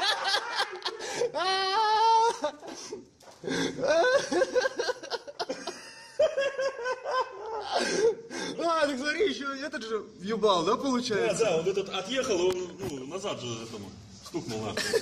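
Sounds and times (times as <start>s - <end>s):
people laughing and exclaiming: 0.0s - 8.3s.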